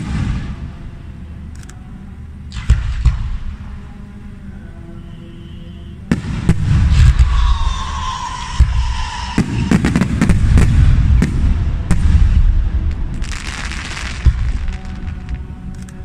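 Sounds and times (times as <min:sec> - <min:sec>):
fireworks bangs: 0:00.0 - 0:01.0, 0:02.5 - 0:03.8, 0:06.1 - 0:15.5
low rumble: 0:00.0 - 0:05.3, 0:06.0 - 0:16.0.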